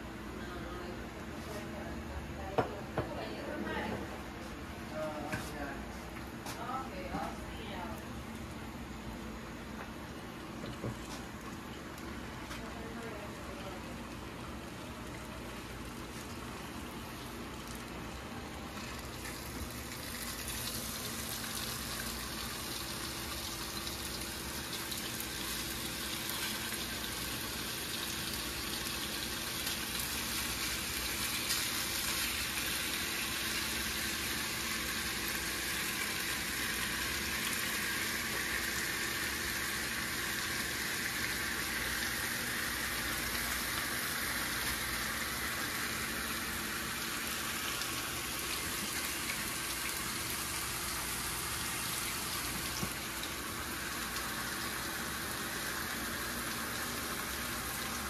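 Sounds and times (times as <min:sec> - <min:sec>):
food sizzling in a pan: 0:19.4 - 0:57.5.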